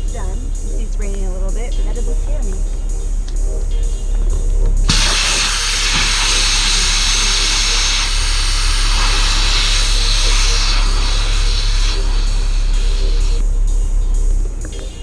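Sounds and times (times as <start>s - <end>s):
air hissing out of valve: 4.7s - 13.4s.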